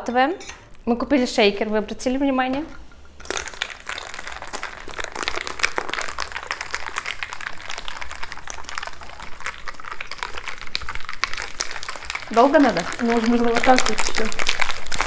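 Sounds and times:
liquid sloshing: 0:02.7 - 0:15.0
ice rattling in cocktail shaker: 0:03.1 - 0:15.0.

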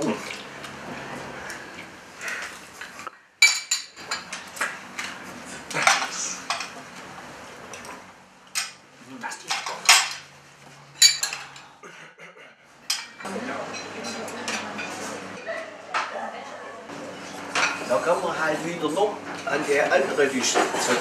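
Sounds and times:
spoons clinking on porcelain bowls: 0:03.4 - 0:04.4, 0:11.0 - 0:11.6, 0:12.9 - 0:15.0.

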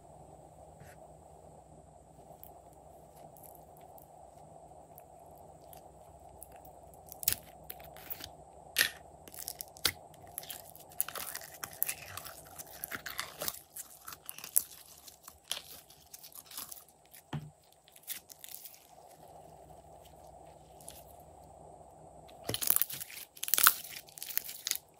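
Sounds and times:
slime crackling and popping: 0:06.4 - 0:18.9, 0:22.4 - 0:24.9.

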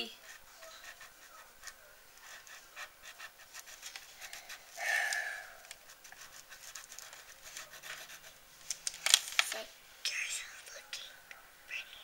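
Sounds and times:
crayon scratching on paper: 0:00.0 - 0:04.8, 0:05.4 - 0:08.4
breathy exhale: 0:04.8 - 0:05.7.

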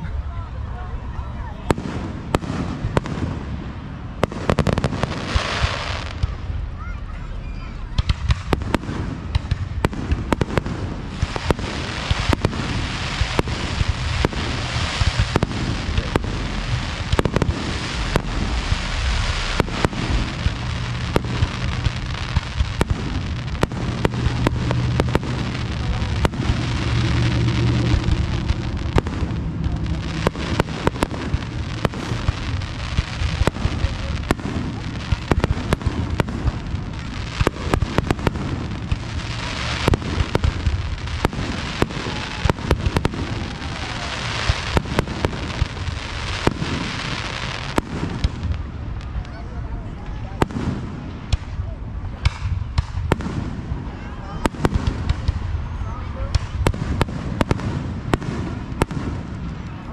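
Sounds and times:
low rumble: 0:12.3 - 0:44.1.

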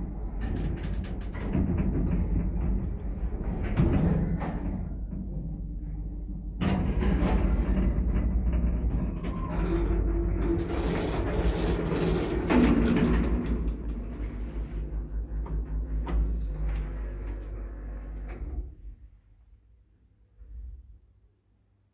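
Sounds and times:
lift rumbling and rattling: 0:00.0 - 0:19.2
sliding doors motor whine: 0:06.9 - 0:18.8.

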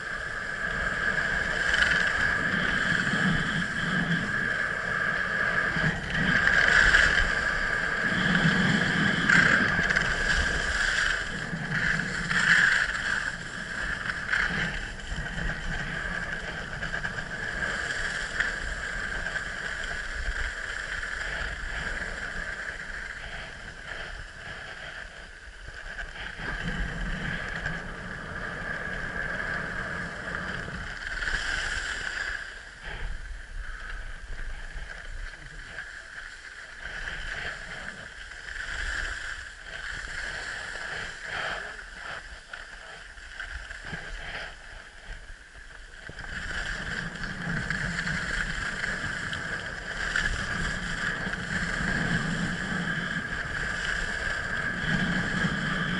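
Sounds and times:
skis scraping over snow: 0:00.0 - 0:55.9
wind on microphone: 0:00.0 - 0:55.9.

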